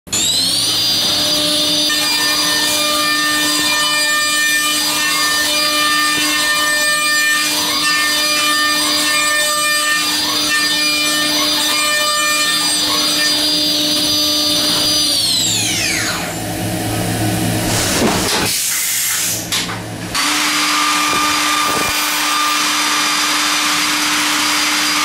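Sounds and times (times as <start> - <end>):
machining spindle whining: 20.2 - 24.9.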